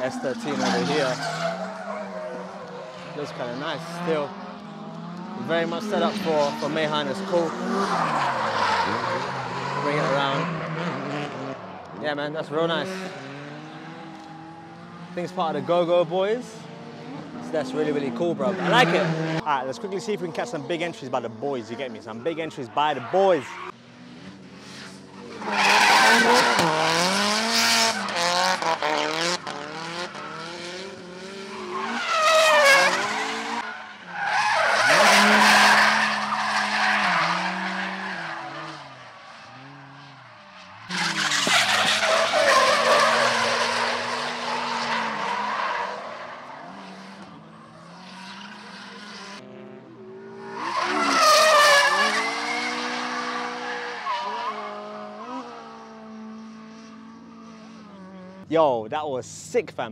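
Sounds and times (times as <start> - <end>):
engines revving: 0.0 - 58.6
tyres screeching: 31.5 - 40.0.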